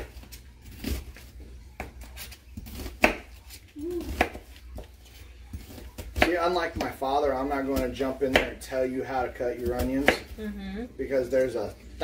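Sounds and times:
knife chopping on plastic board: 2.6 - 4.9, 5.6 - 8.8, 9.6 - 10.4.

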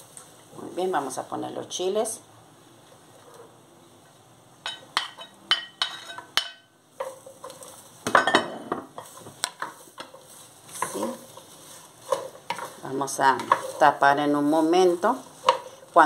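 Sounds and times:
stirring vegetables in clay pot: 4.8 - 8.0, 8.9 - 16.0
wooden spatula scraping plate: 9.0 - 16.0.

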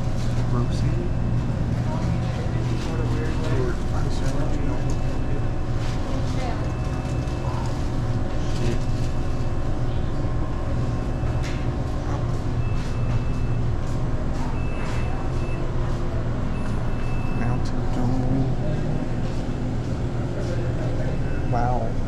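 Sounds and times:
drink cooler fans humming: 0.0 - 22.0
faint high beep: 16.5 - 17.6.

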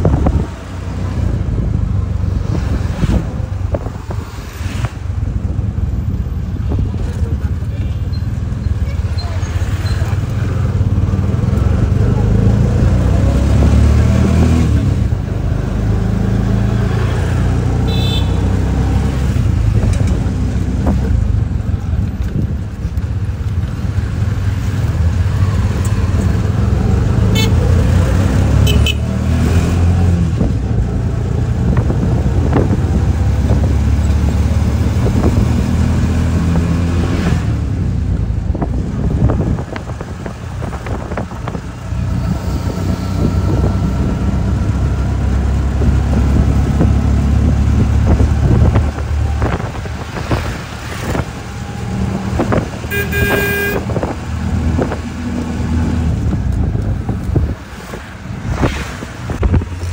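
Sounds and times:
vehicle engine and tyres rumbling: 0.0 - 59.9
short high horn toots: 52.9 - 53.9.

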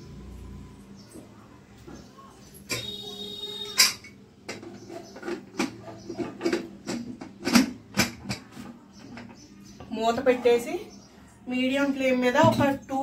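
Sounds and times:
metal pot and utensils clinking: 2.6 - 9.4.

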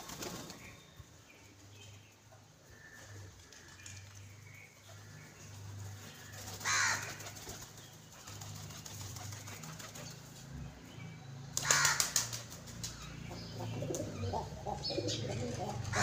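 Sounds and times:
pigeon wings flapping: 0.0 - 0.6, 6.4 - 10.2, 11.6 - 12.9.

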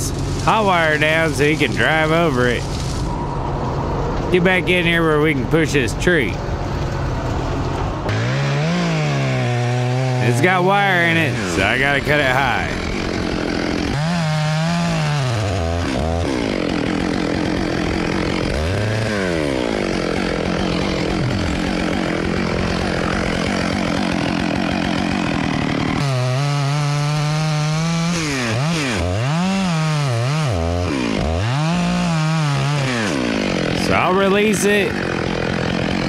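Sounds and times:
chainsaw cutting wood: 0.0 - 3.1, 6.3 - 36.0
chainsaw engine revving: 0.0 - 3.2, 4.0 - 36.0.

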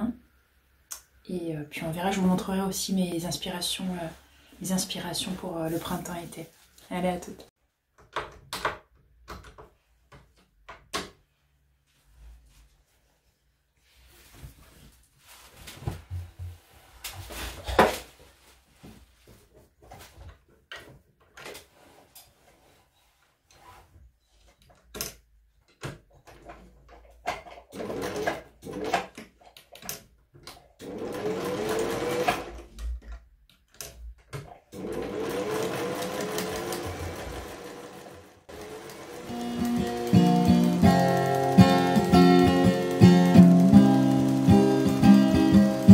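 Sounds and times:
sewing machine stitching: 27.4 - 30.0, 30.6 - 32.8, 34.7 - 45.9.

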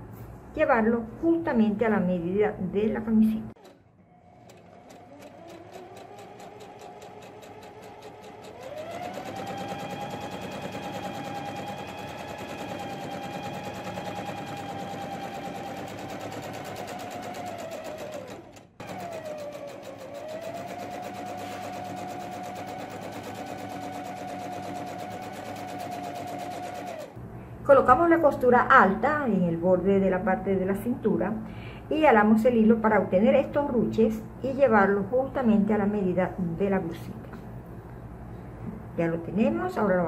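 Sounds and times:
electric sewing machine sewing: 3.6 - 27.2.

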